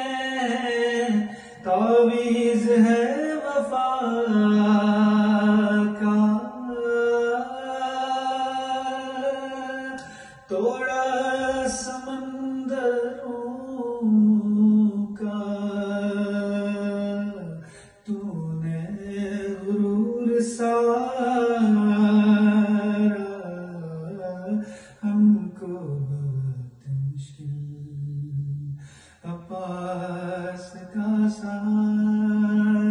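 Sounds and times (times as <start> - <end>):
man chanting: 0.0 - 32.9.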